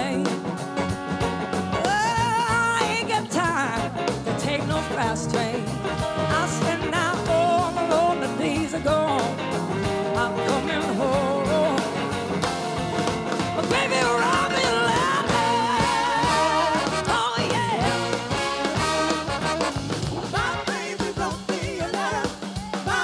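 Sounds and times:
woman singing: 0:00.0 - 0:00.4, 0:01.8 - 0:09.4, 0:10.1 - 0:12.2, 0:13.6 - 0:18.3, 0:20.3 - 0:23.0
rock band playing: 0:00.0 - 0:23.0.

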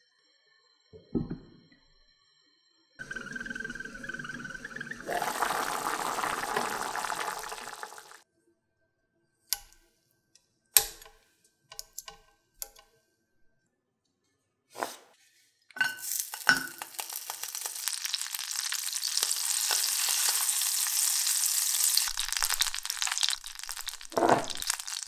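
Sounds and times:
water boiling in a saucepan: 0:03.0 - 0:08.2, 0:15.8 - 0:25.0
metal spoon clinking on pot: 0:15.8 - 0:17.2.

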